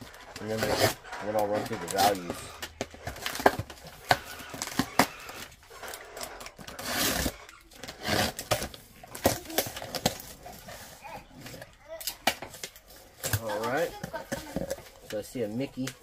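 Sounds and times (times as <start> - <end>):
box cutter slitting tape: 0.4 - 10.3.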